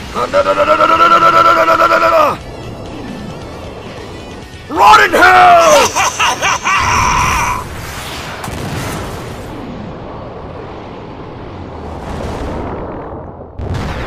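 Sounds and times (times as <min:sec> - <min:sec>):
explosion rumble: 0:07.6 - 0:14.0.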